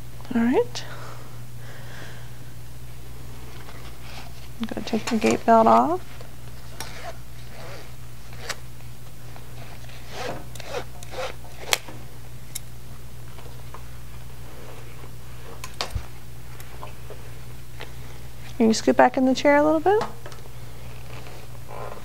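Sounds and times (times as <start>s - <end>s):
low electrical hum: 0.0s - 22.0s
buckle and strap rasps and clicks: 10.1s - 11.8s.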